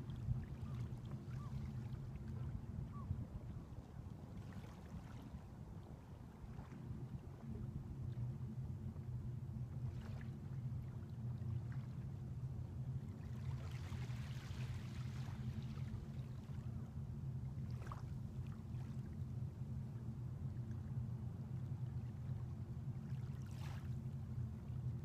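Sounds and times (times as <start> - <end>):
small waves lapping on shore: 0.0 - 7.7, 13.0 - 19.3, 21.6 - 24.8
steady low hum: 0.0 - 25.0.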